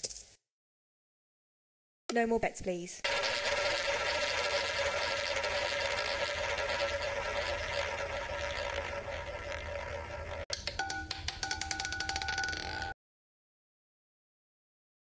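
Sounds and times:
roulette ball whirring rattle: 3.0s - 13.0s.

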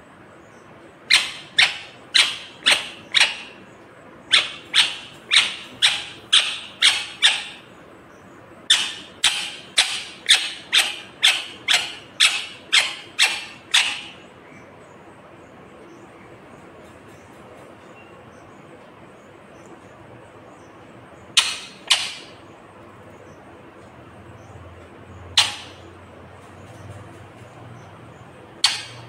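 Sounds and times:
parakeet giving sharp high calls: 1.1s - 3.6s, 4.2s - 7.7s, 8.7s - 14.3s, 21.3s - 22.4s, 25.3s - 25.9s.

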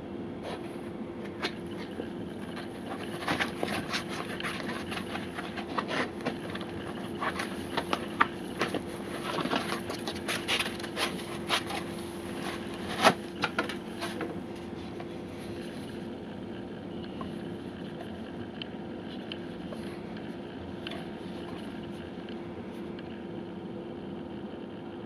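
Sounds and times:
steady low hum: 0.0s - 25.0s
hands rustling packing foam: 1.2s - 16.0s.

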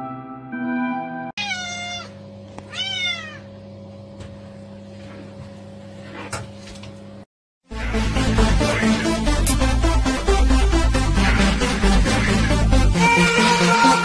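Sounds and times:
cat meowing: 1.4s - 3.5s
steady low hum: 7.7s - 13.0s.

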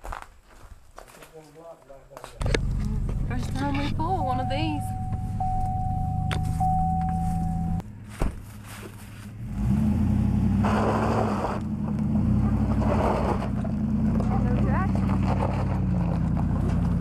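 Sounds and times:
truck engine running: 2.4s - 17.0s
steady high tone: 2.8s - 7.8s
tyre and road noise on gravel: 7.2s - 9.8s, 10.4s - 17.0s.

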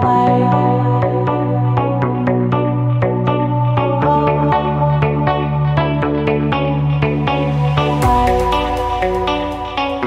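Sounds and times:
pulsing struck notes: 7.1s - 10.0s.

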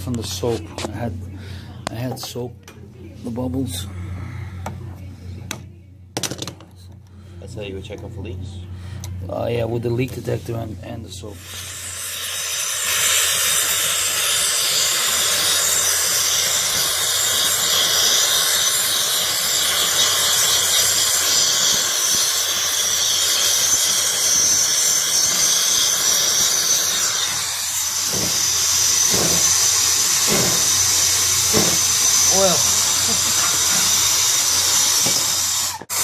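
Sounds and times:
torch flame hissing: 11.3s - 36.0s.

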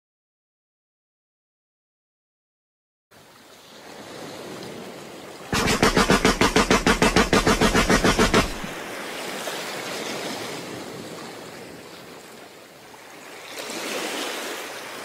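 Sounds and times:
ocean surf: 3.5s - 12.2s, 13.0s - 15.0s
automatic gunfire burst: 5.6s - 8.8s.

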